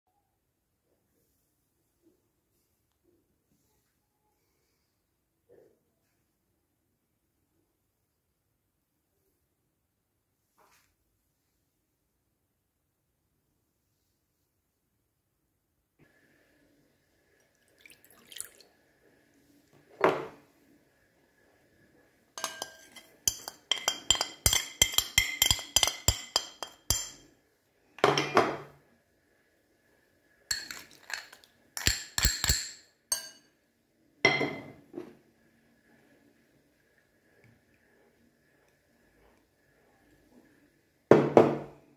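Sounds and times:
spoon and glass clinking on bowl: 0:22.4 - 0:27.2, 0:30.5 - 0:33.5.

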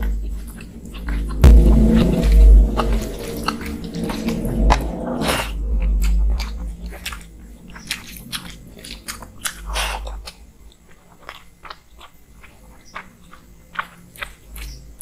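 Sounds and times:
chewing with wet mouth clicks: 0:00.0 - 0:01.4, 0:06.4 - 0:15.0.

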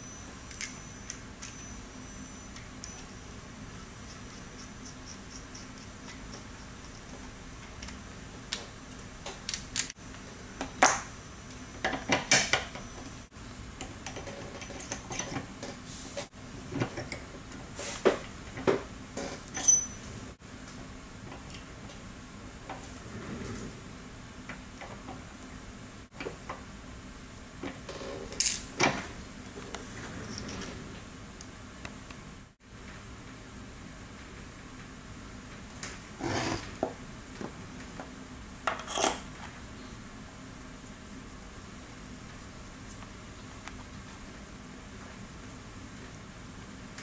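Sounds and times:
metal parts clicking and clinking: 0:19.5 - 0:20.0.

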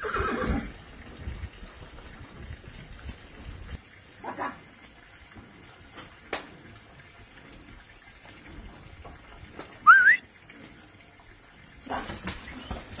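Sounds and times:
hooves splashing through mud: 0:00.2 - 0:03.9, 0:11.8 - 0:13.0
short rising whistle: 0:09.8 - 0:10.2.

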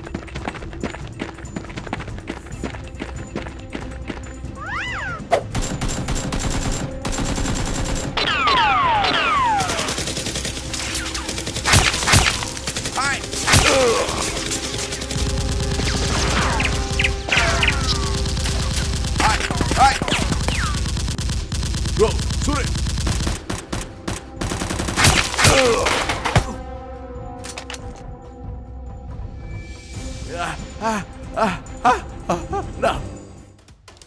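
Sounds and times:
gunshots: 0:05.5 - 0:26.5.

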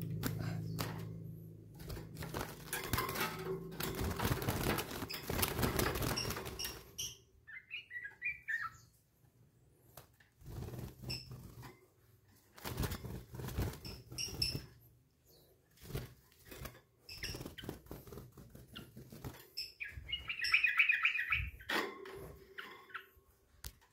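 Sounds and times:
wire birdcage clicking and rustling: 0:00.1 - 0:07.1
bird chirps: 0:06.2 - 0:09.0, 0:19.6 - 0:21.7.

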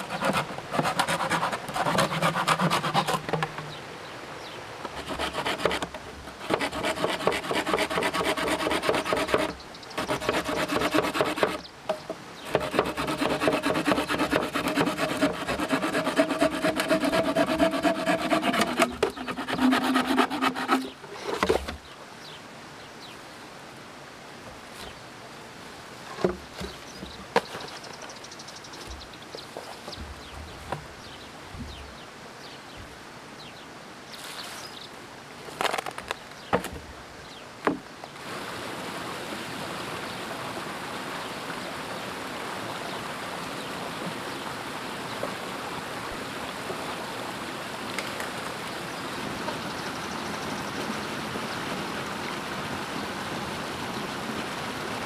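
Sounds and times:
hand saw cutting bamboo: 0:00.0 - 0:03.6, 0:04.9 - 0:11.6, 0:12.5 - 0:21.8
forest background: 0:00.0 - 0:55.0.

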